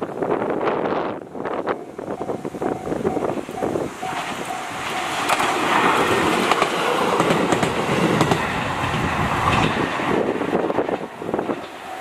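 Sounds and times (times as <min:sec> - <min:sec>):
level-crossing warning bell: 0:01.6 - 0:06.6, 0:11.6 - 0:12.0
train wheels clacking over rail joints: 0:04.0 - 0:12.0.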